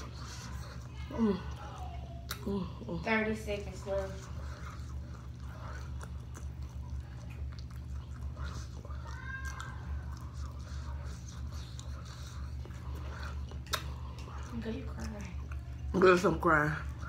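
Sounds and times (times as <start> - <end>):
close chewing with mouth clicks: 0.0 - 17.0
steady low hum: 0.0 - 17.0.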